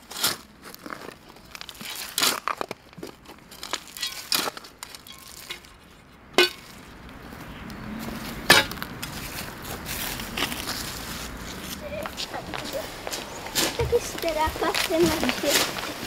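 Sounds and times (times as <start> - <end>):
stones clinking: 1.2 - 5.8
spade digging stony soil: 3.6 - 6.8
spade blade striking: 6.4 - 6.7, 8.5 - 8.8.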